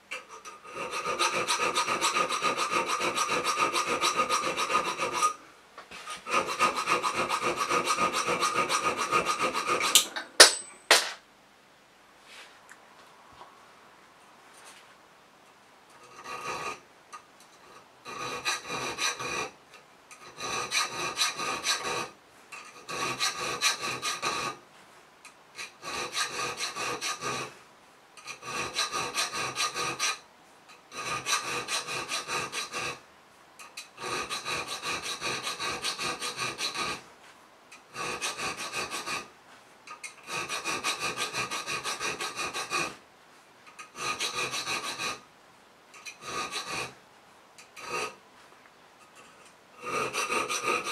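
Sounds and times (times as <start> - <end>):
file rasping on steel blade: 0.1 - 10.2, 16.0 - 16.8, 17.6 - 24.6, 25.6 - 27.6, 28.2 - 33.0, 33.6 - 37.1, 37.7 - 39.3, 39.9 - 43.0, 43.7 - 45.2, 46.0 - 47.0, 47.6 - 48.2, 49.0 - 50.9.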